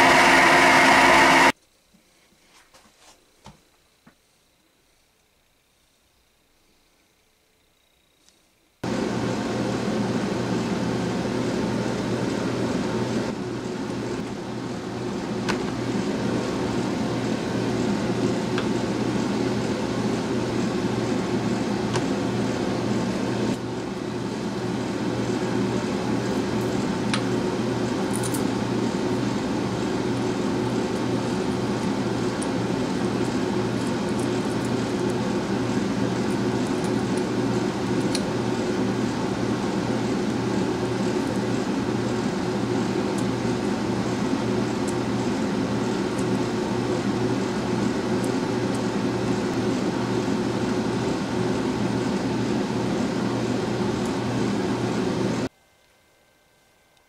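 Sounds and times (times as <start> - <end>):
motor humming: 0.0 - 1.6.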